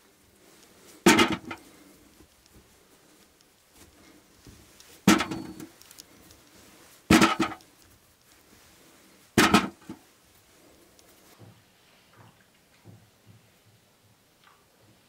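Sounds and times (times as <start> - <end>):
potatoes clattering into metal bucket: 1.1 - 1.6, 5.1 - 5.7, 7.1 - 7.6, 9.4 - 10.0.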